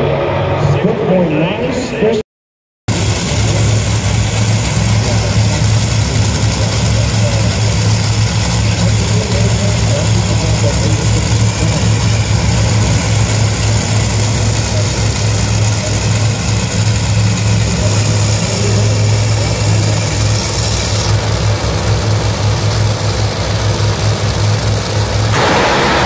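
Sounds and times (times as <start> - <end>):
dragster engines idling: 2.9 - 26.0.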